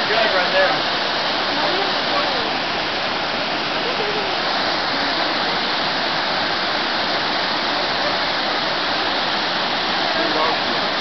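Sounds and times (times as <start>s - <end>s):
waterfall rushing over rocks: 0.0s - 11.0s.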